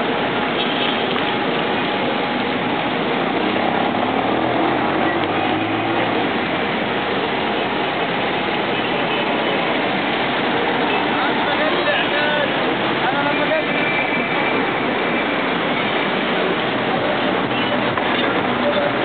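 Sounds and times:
street traffic noise: 0.0 - 19.0
vehicle engine passing: 3.2 - 7.0.

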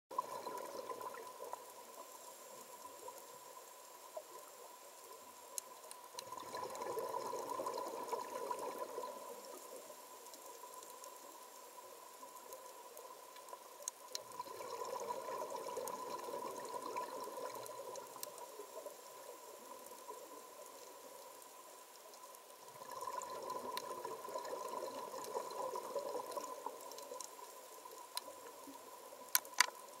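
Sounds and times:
underwater exhaled bubbles: 0.1 - 5.2, 5.8 - 21.4, 22.6 - 30.0
sharp clicks: 29.3 - 29.8.

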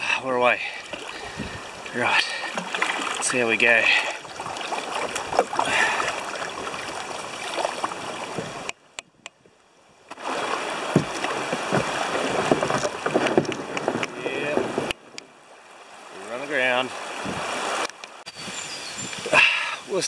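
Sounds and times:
river water rushing and splashing: 0.0 - 9.0, 10.1 - 20.0.

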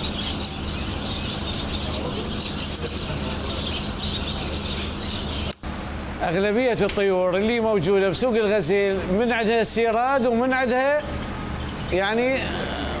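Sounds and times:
parakeets chirping and chattering: 0.0 - 5.6, 8.7 - 13.0.

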